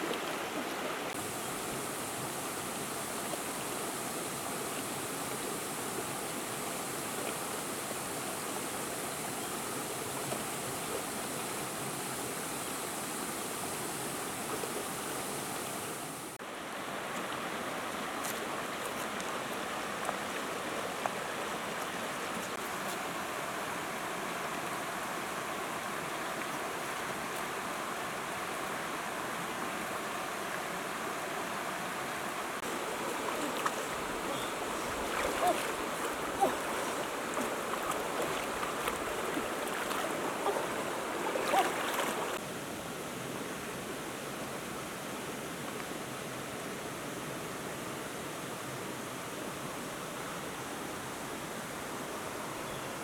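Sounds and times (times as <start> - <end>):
flowing water rushing: 0.0 - 53.0
small knocks and splashes: 32.6 - 42.4.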